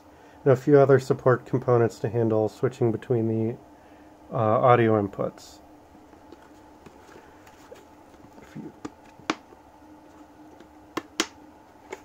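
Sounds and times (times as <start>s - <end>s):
plastic helmet knocks and clicks: 8.8s - 9.6s, 10.5s - 12.0s.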